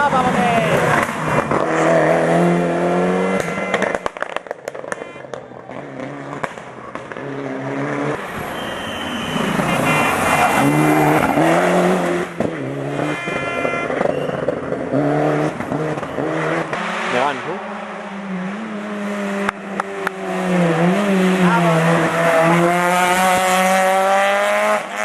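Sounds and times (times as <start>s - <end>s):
car engine revving through gears: 0.0s - 25.0s
rally car engine passing: 0.0s - 25.0s
exhaust pops and crackles: 3.4s - 7.2s.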